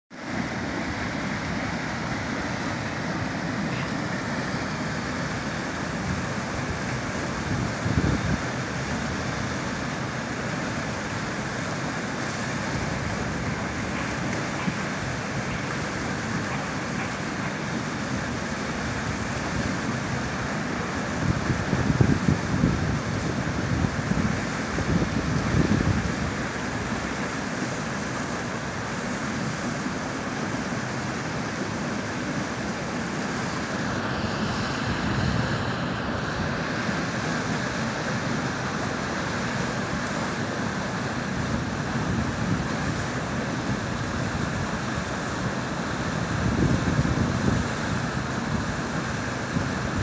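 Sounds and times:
river rushing over rapids: 0:00.1 - 0:50.0
wind buffeting microphone: 0:00.5 - 0:09.4, 0:21.1 - 0:26.9, 0:39.8 - 0:50.0.

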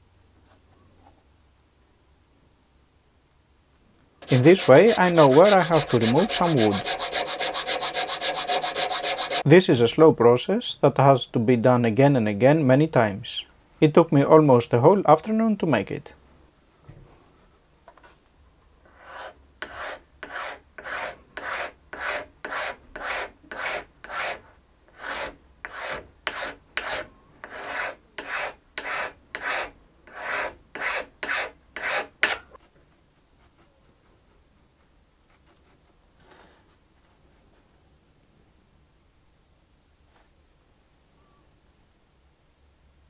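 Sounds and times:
hand file scraping wood: 0:04.2 - 0:09.5, 0:18.9 - 0:32.8.

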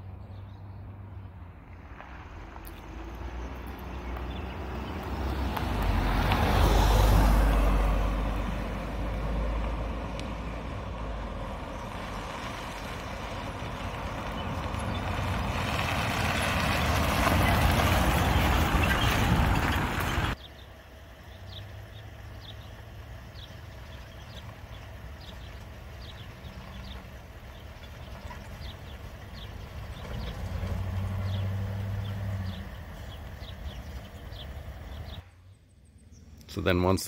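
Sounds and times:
van towing trailer rumbling past: 0:00.0 - 0:35.3
car passing: 0:00.0 - 0:37.0.

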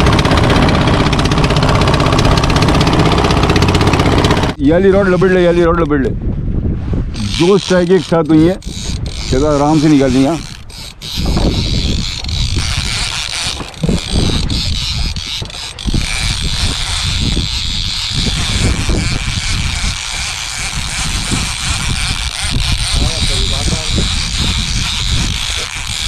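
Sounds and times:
fishing reel clicking: 0:07.1 - 0:26.0.

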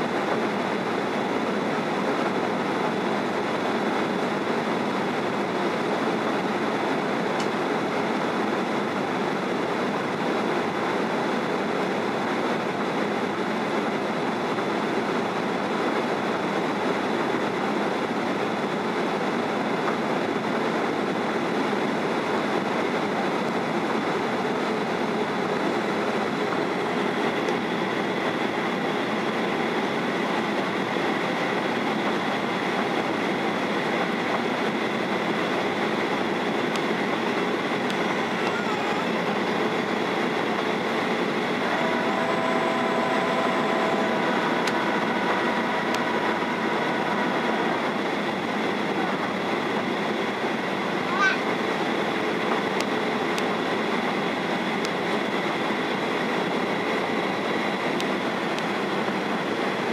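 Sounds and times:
airflow and engine noise: 0:00.0 - 0:59.9
faint high whine: 0:25.2 - 0:59.9.

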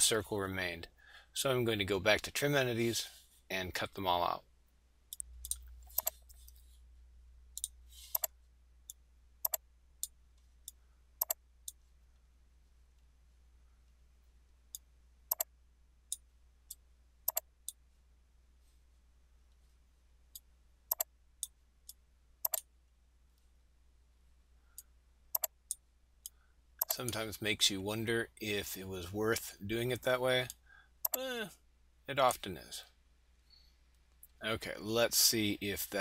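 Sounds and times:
faint low hum: 0:00.0 - 0:36.0
computer mouse clicking: 0:05.1 - 0:06.6, 0:07.6 - 0:11.8, 0:14.7 - 0:15.5, 0:17.3 - 0:17.8, 0:20.9 - 0:21.1, 0:21.9 - 0:22.7, 0:24.8 - 0:27.2.

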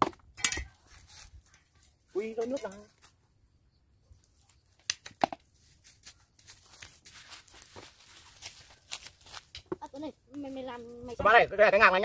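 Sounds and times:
herbs rustling and tearing: 0:04.2 - 0:10.5.

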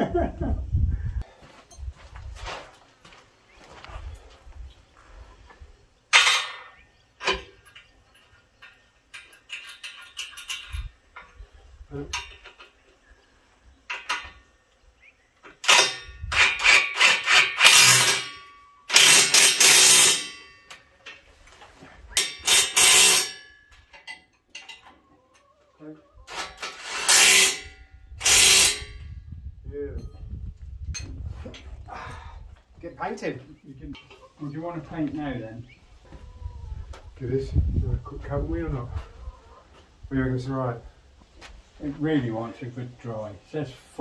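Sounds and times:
metal tools clanking: 0:06.1 - 0:12.9, 0:15.4 - 0:21.3, 0:22.1 - 0:25.6, 0:30.0 - 0:31.8.

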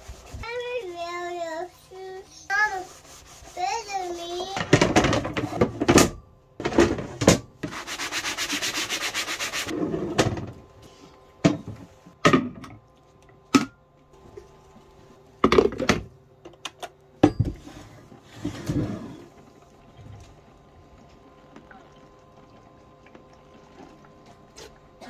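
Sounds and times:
rubbing rasp: 0:02.5 - 0:04.6, 0:07.6 - 0:09.7.

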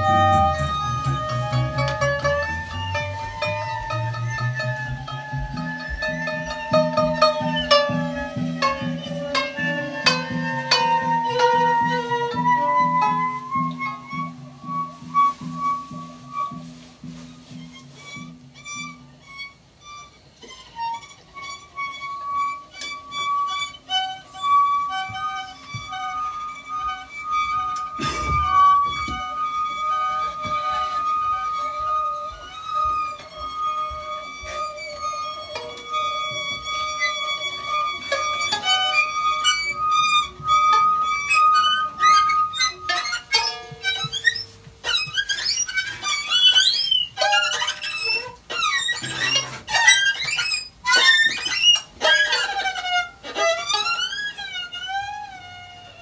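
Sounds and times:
long held high note: 0:00.0 - 0:16.8
plucked and tapped notes: 0:00.0 - 0:56.0
wavering pitch slides: 0:00.0 - 0:56.0.

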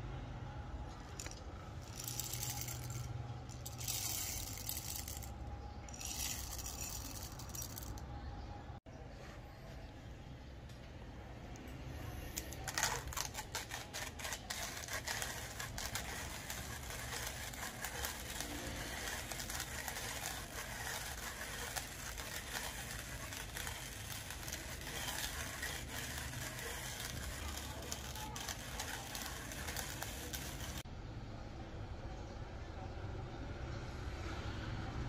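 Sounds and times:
hand coffee grinder crunching beans: 0:01.1 - 0:08.0, 0:12.4 - 0:30.8.

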